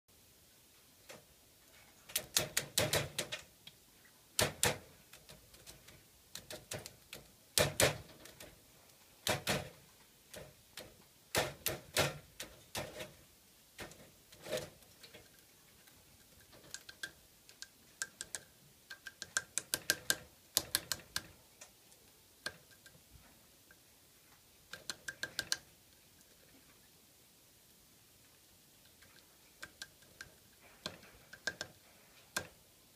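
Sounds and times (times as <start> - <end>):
woodpecker tapping on pine cone: 15.8 - 21.3, 24.7 - 25.7, 28.9 - 32.5.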